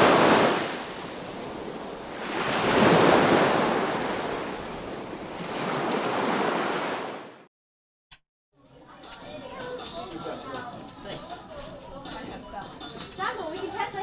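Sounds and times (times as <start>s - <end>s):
ocean surf washing: 0.0s - 7.5s.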